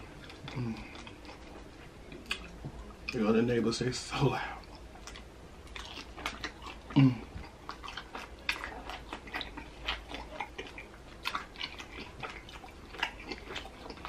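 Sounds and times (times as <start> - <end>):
wet chewing and lip-smacking: 0.0 - 3.2, 4.4 - 14.0.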